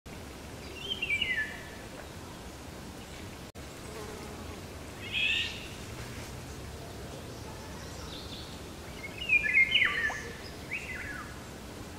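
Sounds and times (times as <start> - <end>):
outdoor background hiss: 0.1 - 11.9
high chittering bird calls: 5.0 - 5.8, 6.5 - 11.6.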